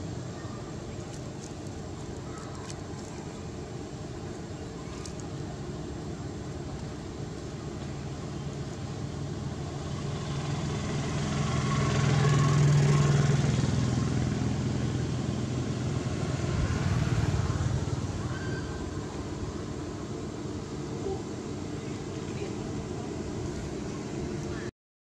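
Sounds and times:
vehicle engine humming: 0.0s - 24.7s.

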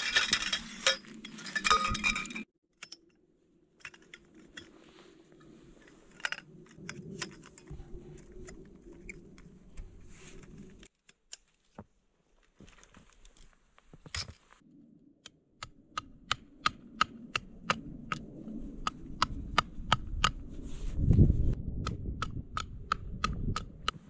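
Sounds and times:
low rumble: 5.3s - 10.9s, 14.7s - 23.9s.

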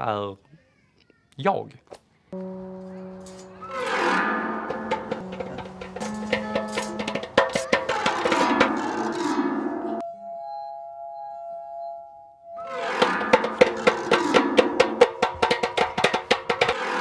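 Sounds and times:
stick striking piano strings: 2.4s - 10.0s, 12.7s - 17.0s
ringing tones from drinking glasses: 10.0s - 13.2s.

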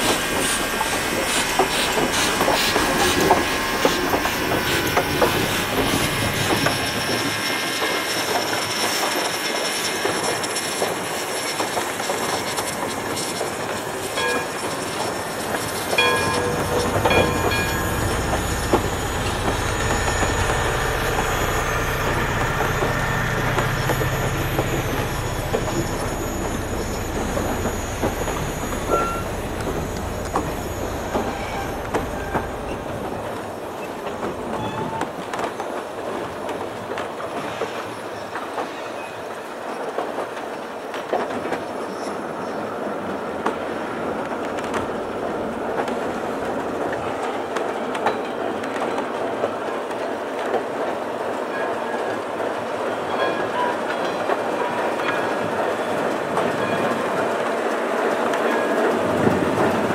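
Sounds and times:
wheel squeals: 0.0s - 35.6s
train wheels on rails: 0.0s - 59.9s.

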